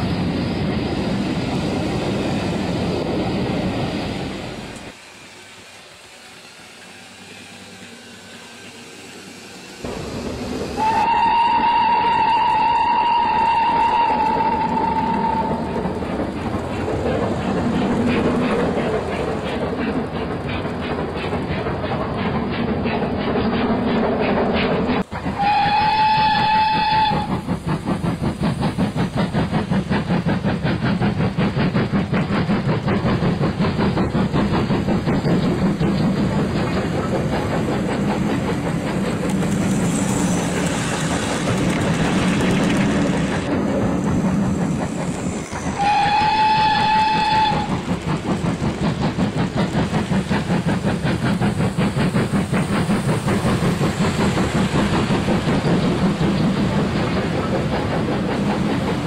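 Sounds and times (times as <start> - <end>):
steam hissing: 0.0 - 59.0
steam locomotive chuffing: 0.0 - 59.0
locomotive whistle blasts: 10.8 - 15.6, 25.4 - 27.3, 45.8 - 47.7.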